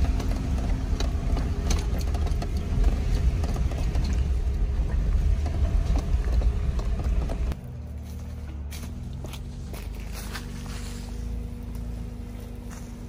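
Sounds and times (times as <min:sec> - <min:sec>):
knocks and rattles: 0:00.0 - 0:07.6
engine and tyres rumbling: 0:00.0 - 0:13.0.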